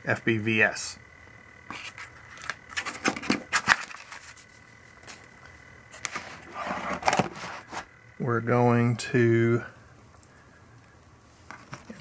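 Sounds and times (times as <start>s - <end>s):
paper rustling: 1.7s - 5.3s, 5.9s - 7.9s.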